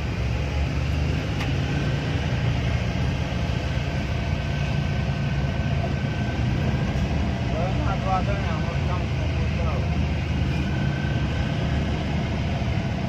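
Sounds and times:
road noise: 0.0s - 13.0s
vehicle engine drone: 0.0s - 13.0s.

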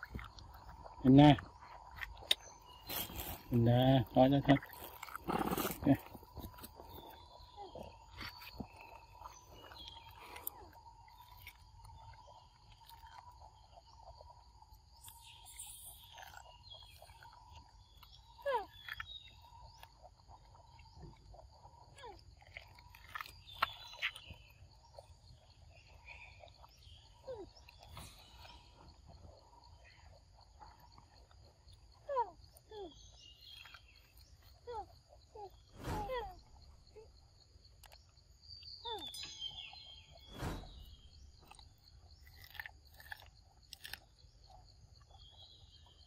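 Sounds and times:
short falling chirps: 40.1s - 41.6s.

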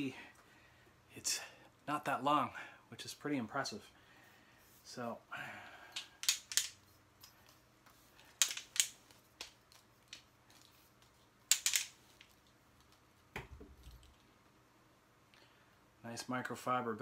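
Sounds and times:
tripod clicks and rustles: 6.0s - 14.3s.

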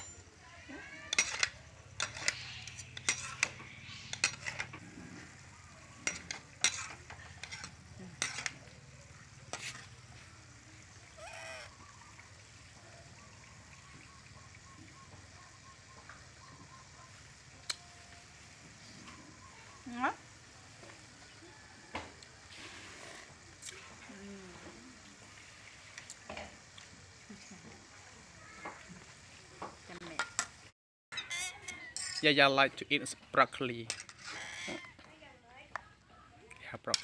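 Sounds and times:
spatula scraping metal wok: 0.8s - 10.3s, 31.1s - 32.3s, 33.9s - 35.0s.

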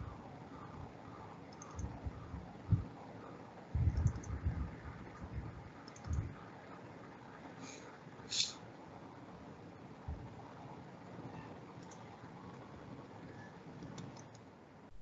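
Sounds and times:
mouse and keyboard clicks: 1.5s - 2.0s, 3.9s - 4.4s, 5.8s - 6.3s, 11.8s - 12.0s, 13.8s - 14.4s.

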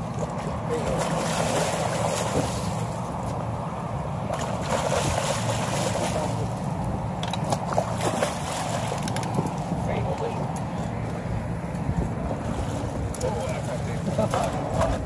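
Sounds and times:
waves washing: 0.0s - 10.0s
wind buffeting microphone: 0.0s - 15.0s.

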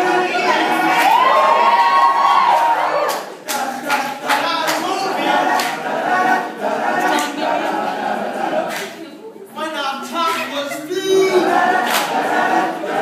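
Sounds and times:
men singing a cappella: 0.0s - 1.6s, 3.3s - 8.8s, 9.5s - 13.0s
hand claps: 2.5s - 5.9s, 7.1s - 7.4s, 8.6s - 9.0s, 11.8s - 12.2s.

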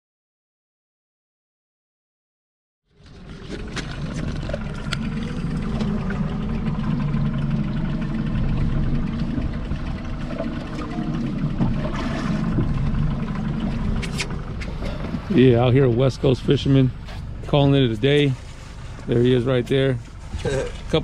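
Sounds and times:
boat engine drone: 2.9s - 21.0s.

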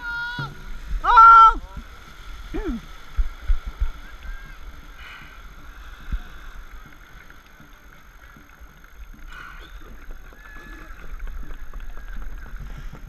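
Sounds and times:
low thumps: 0.0s - 4.0s
paddles churning water: 0.0s - 13.0s
spray splashing along hull: 0.0s - 13.0s.

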